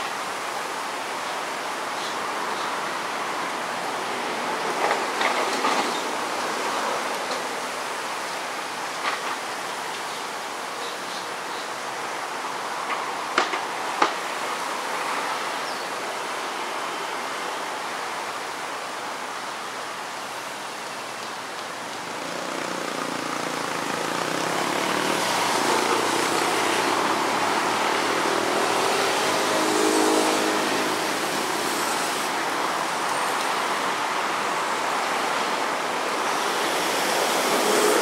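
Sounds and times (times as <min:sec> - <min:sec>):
outdoor background hiss: 0:00.0 - 0:38.0
road traffic: 0:00.0 - 0:38.0
vehicle passing: 0:22.1 - 0:32.4, 0:36.4 - 0:38.0.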